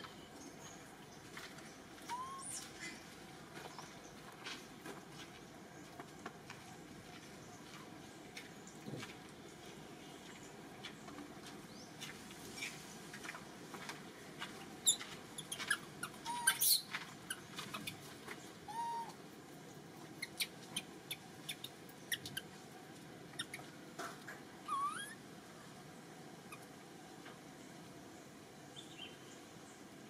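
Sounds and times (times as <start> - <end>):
high animal squeaks: 2.1 - 3.0, 14.8 - 18.1, 18.7 - 19.2, 20.1 - 22.5, 23.3 - 23.7, 24.6 - 25.2.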